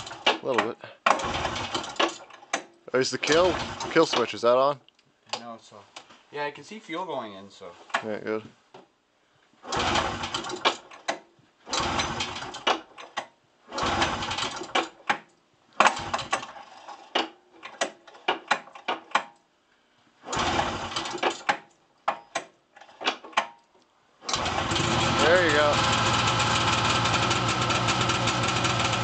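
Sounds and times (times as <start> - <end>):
recoil pull-starter cranking engine: 0.0 - 4.3, 9.6 - 15.1, 15.8 - 19.2, 20.2 - 21.7, 24.2 - 29.0.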